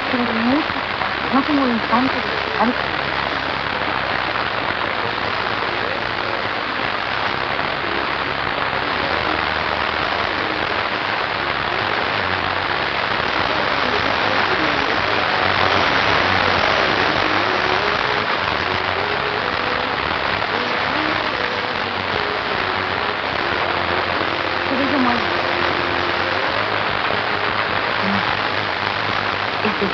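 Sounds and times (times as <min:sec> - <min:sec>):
steady hiss: 0:00.0 - 0:29.9.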